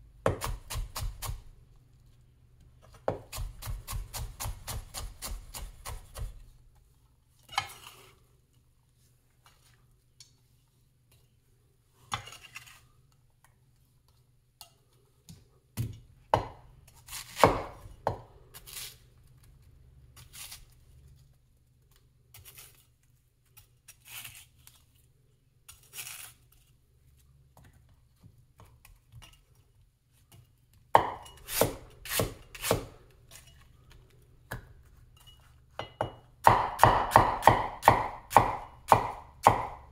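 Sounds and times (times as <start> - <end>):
cleaver chopping on wooden board: 36.0 - 39.9.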